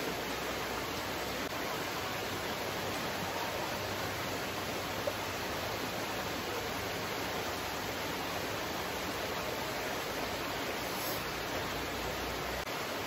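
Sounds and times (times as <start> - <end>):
stream water flowing: 0.0 - 13.0.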